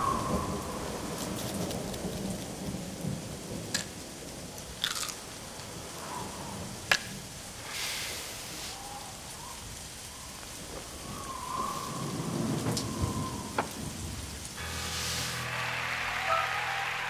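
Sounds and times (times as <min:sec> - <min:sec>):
low rumble of thunder: 0:00.0 - 0:04.8, 0:10.6 - 0:14.6
steady rain: 0:00.0 - 0:17.0
sustained musical chord: 0:14.6 - 0:17.0.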